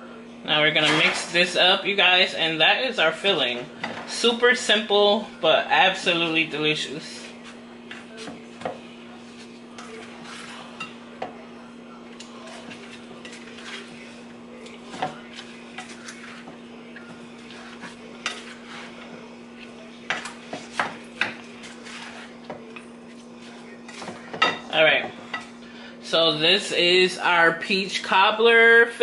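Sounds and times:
wet stirring in a bowl: 0:07.0 - 0:25.6.

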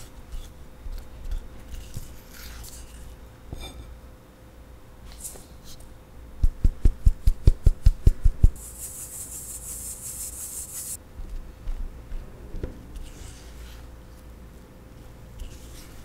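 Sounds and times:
flour hissing through mesh: 0:08.6 - 0:11.0.

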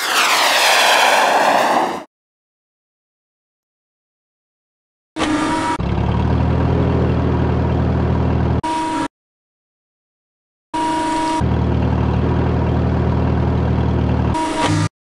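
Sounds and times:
forklift engine humming: 0:05.8 - 0:08.6, 0:11.4 - 0:14.4.

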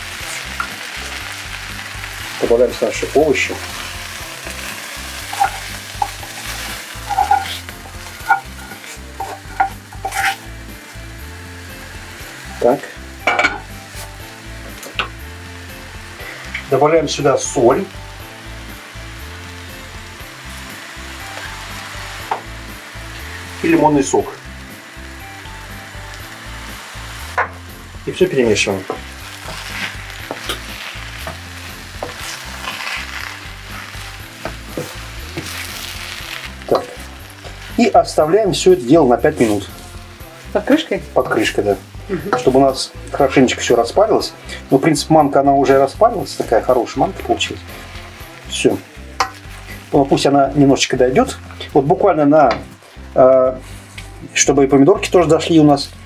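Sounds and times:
sizzling in cooking pot: 0:00.0 - 0:56.0
wooden spatula scraping a pan: 0:03.4 - 0:10.5, 0:28.7 - 0:38.0
spoon scraping frying pan: 0:05.1 - 0:10.5.

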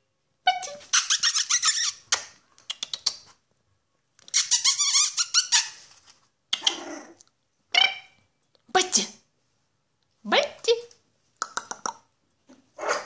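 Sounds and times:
squeaky dog toy squeaking: 0:00.5 - 0:02.3, 0:04.3 - 0:05.8, 0:07.7 - 0:08.2.

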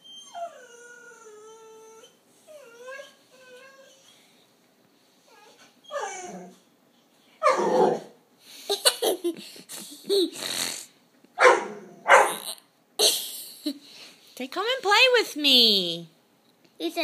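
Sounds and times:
dog whining: 0:00.0 - 0:04.3, 0:05.3 - 0:06.7, 0:07.4 - 0:08.2
dog growling: 0:06.0 - 0:06.6, 0:07.4 - 0:08.2, 0:11.6 - 0:12.6
dog barking: 0:07.4 - 0:08.0, 0:11.4 - 0:12.4.

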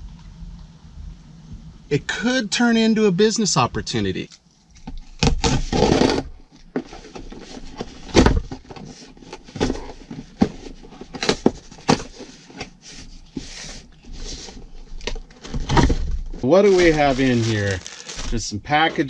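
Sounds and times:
packing tape ripping off cardboard: 0:05.1 - 0:06.3, 0:16.6 - 0:18.4
cardboard flaps handled: 0:05.2 - 0:12.8, 0:15.4 - 0:18.4.

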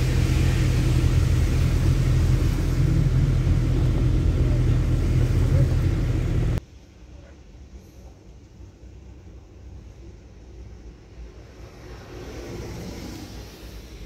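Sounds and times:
car engine and road rumble: 0:00.0 - 0:06.6
tyre hiss on wet road: 0:00.0 - 0:06.6, 0:11.4 - 0:14.0.

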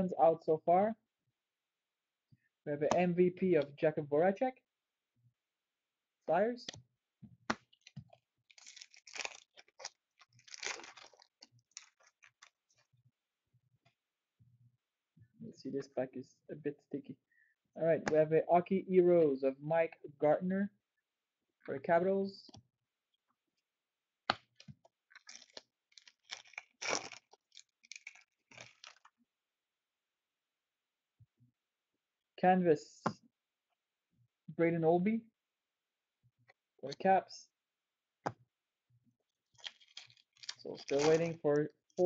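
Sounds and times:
cards being handled: 0:07.4 - 0:12.9, 0:39.6 - 0:41.4
wrapper crinkling and tearing: 0:07.7 - 0:12.9, 0:25.1 - 0:29.1, 0:39.6 - 0:41.4.

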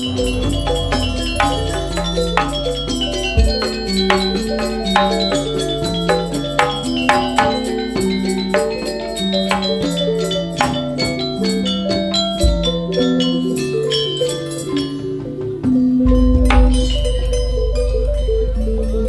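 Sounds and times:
deep low gong boom: 0:00.0 - 0:06.6
gamelan metallophone melody: 0:00.0 - 0:19.0.

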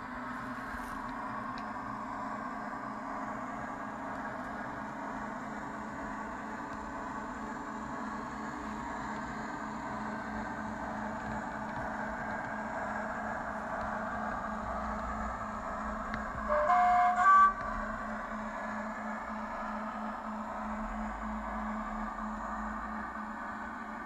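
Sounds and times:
recorded diesel engine running: 0:00.0 - 0:24.0
two-tone horn: 0:16.4 - 0:17.6.

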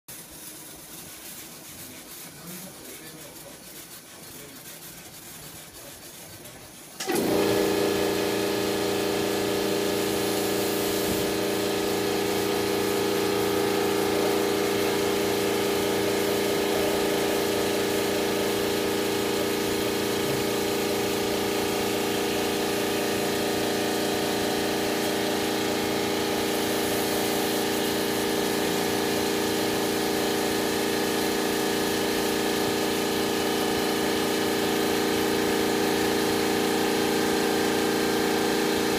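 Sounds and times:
electric motor humming: 0:07.0 - 0:38.9.

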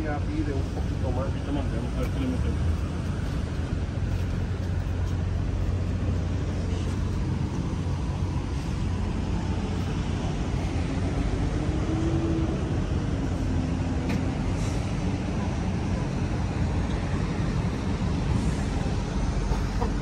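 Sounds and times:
motor vehicle rumble: 0:00.0 - 0:20.0.

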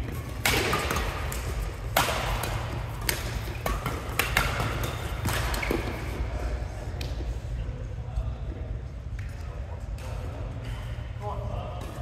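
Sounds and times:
rackets striking shuttlecock: 0:00.0 - 0:06.2
shoes squeaking on court floor: 0:04.8 - 0:06.3.

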